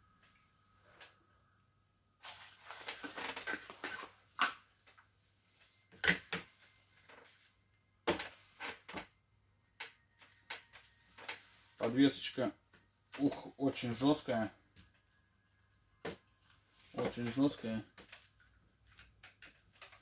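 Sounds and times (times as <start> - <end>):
plastic car chassis clicking and rattling: 18.0 - 20.0.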